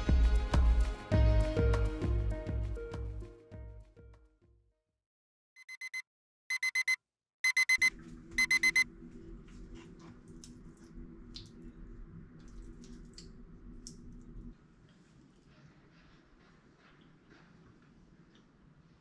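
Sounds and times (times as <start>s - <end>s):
electronic alarm beeping: 5.6s - 8.9s
low steady hum: 7.8s - 19.0s.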